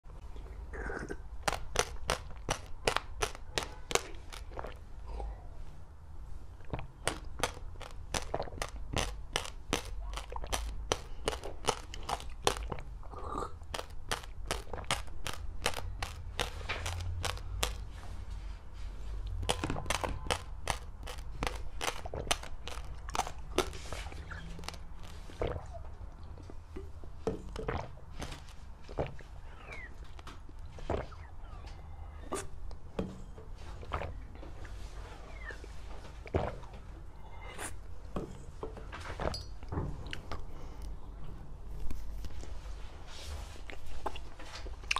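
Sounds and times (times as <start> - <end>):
chewing with sharp crunches: 0.8 - 5.4, 6.6 - 18.0, 19.2 - 32.8, 43.6 - 44.9.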